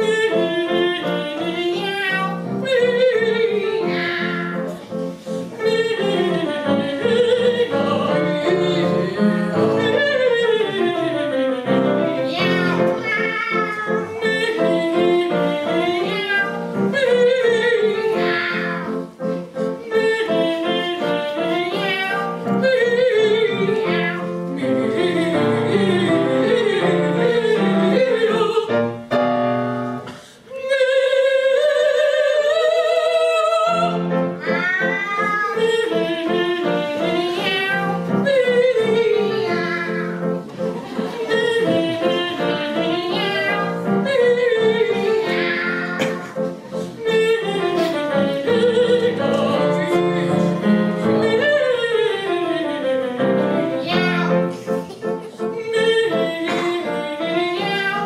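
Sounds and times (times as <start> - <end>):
piano accompaniment: 0.0 - 58.0
operatic duet singing: 5.6 - 13.2, 19.7 - 29.0, 30.4 - 40.2, 41.2 - 46.3, 47.0 - 54.4, 55.4 - 58.0.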